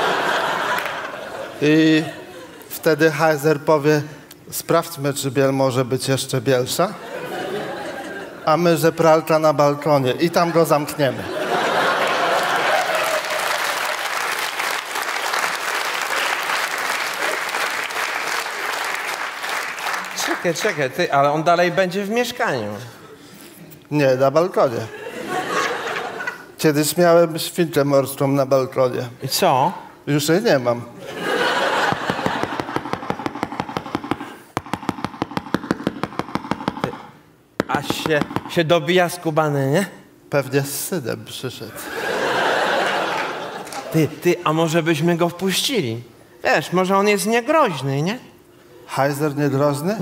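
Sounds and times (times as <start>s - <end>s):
audience laughter: 0.0s - 2.7s, 7.0s - 8.5s, 10.6s - 14.0s, 24.8s - 26.5s, 31.0s - 33.2s, 41.8s - 44.1s
audience applauding: 12.0s - 20.8s, 31.8s - 34.3s.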